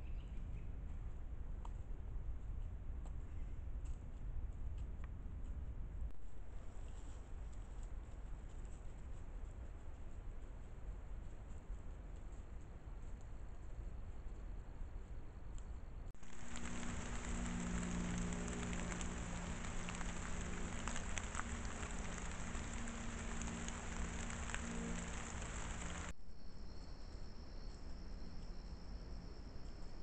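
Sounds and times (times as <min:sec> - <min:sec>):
low steady drone: 0:16.2 - 0:26.1
rain falling: 0:16.2 - 0:26.1
water dripping: 0:16.2 - 0:26.1
crickets trilling: 0:16.2 - 0:29.6.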